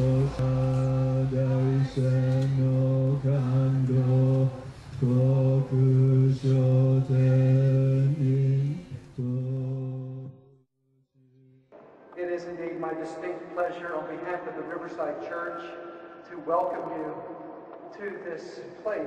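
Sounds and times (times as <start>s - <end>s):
group chanting on one low note: 0.0s - 10.6s.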